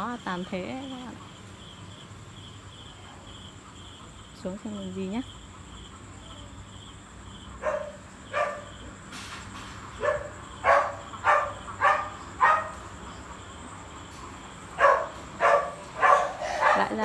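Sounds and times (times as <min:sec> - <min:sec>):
dog barking: 0:07.6 - 0:08.8, 0:10.0 - 0:12.8, 0:14.8 - 0:17.0.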